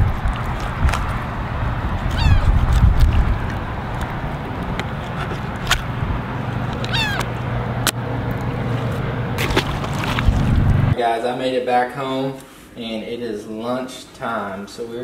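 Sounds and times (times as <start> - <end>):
steady low rumble: 0.0 - 11.0
gull calling: 2.0 - 2.6, 6.7 - 7.5.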